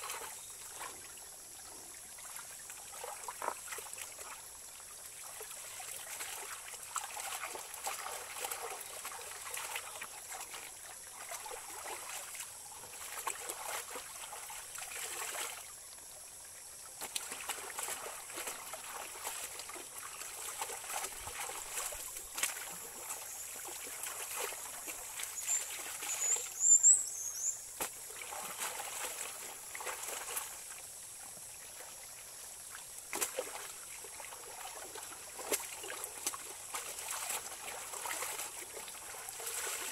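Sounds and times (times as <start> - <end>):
stream trickling: 0.0 - 39.9
clothes splashing in water: 17.0 - 26.1, 27.8 - 30.5, 34.5 - 39.9.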